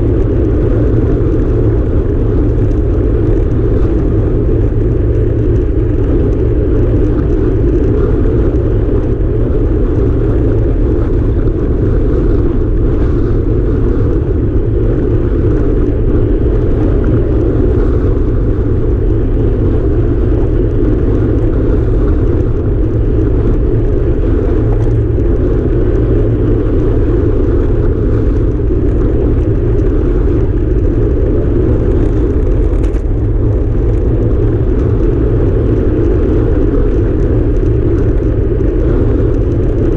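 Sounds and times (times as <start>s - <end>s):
bicycle tyre noise on asphalt: 0.0s - 39.9s
wind buffeting microphone: 0.0s - 39.9s.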